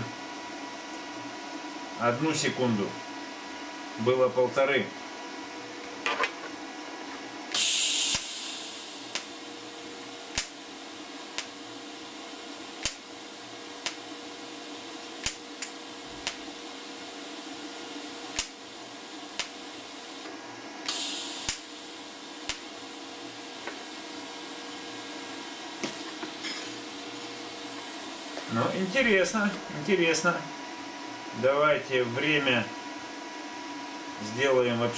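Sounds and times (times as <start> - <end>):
welder steady hum: 0.0 - 34.9
short loud hiss: 7.6 - 8.8
welder arc ticks: 8.1 - 8.3, 9.0 - 9.3, 10.3 - 10.6, 11.3 - 11.6, 12.8 - 13.0, 13.8 - 14.0, 15.0 - 16.4, 18.3 - 18.6, 19.4 - 19.6, 21.4 - 21.7, 22.4 - 22.7.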